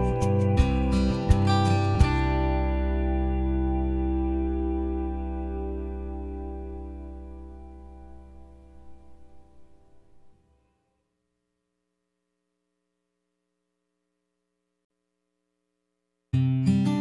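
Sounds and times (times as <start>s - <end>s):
background music: 0.0s - 10.2s
faint steady hum: 2.6s - 16.4s.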